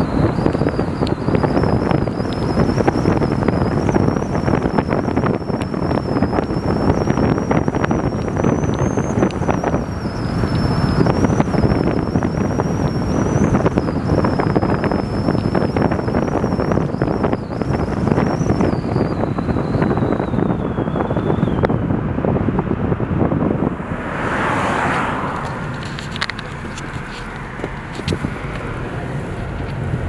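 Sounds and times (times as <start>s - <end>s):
faint high whine: 0.0s - 21.9s
car wind and road rumble: 0.0s - 30.0s.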